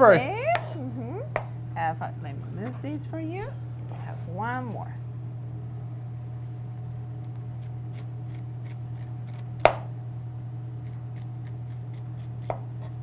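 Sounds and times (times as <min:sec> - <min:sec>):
steady low hum: 0:00.0 - 0:13.0
knife cutting pineapple rind: 0:07.2 - 0:09.9, 0:10.8 - 0:13.0.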